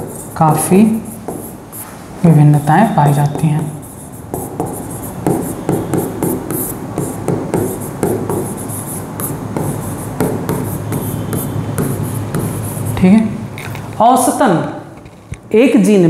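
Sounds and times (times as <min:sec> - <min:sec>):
pen scratching on paper: 0:00.0 - 0:01.9, 0:02.5 - 0:13.1.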